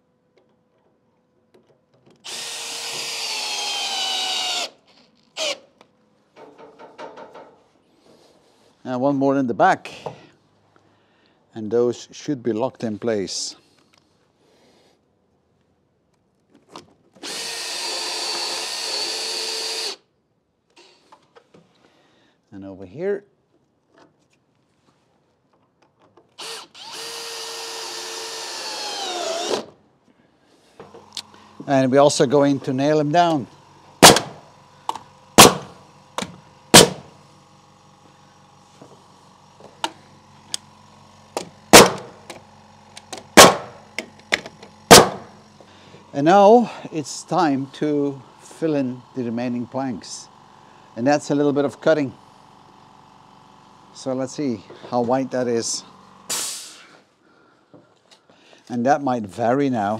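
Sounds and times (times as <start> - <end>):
power drill running: 2.2 - 5.6, 17.2 - 20.1, 26.4 - 29.8, 30.6 - 56.4
nail gun shots: 34.0 - 34.4, 35.4 - 37.1, 41.4 - 42.4, 43.0 - 45.4, 56.3 - 56.7.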